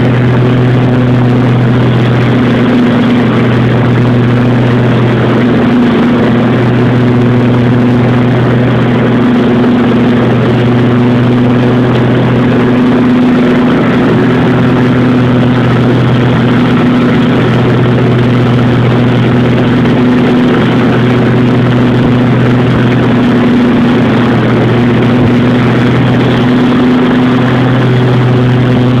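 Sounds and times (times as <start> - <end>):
blades mulching leaves: 0.0 - 29.0
mower engine droning: 0.0 - 29.0.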